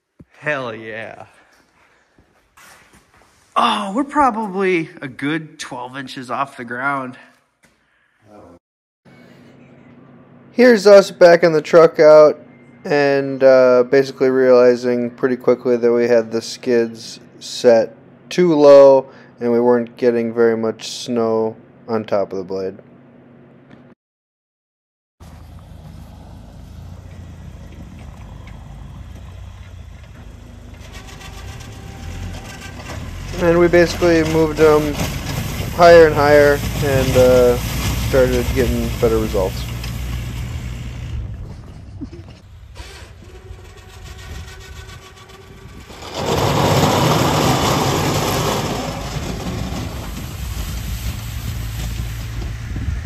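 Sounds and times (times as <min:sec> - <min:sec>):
snow plow scraping snow: 0:25.2 - 0:53.0
truck engine running: 0:25.2 - 0:53.0.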